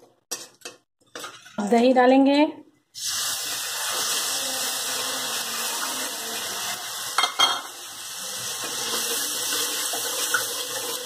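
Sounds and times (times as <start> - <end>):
oil sizzling in a pan: 3.0 - 11.0.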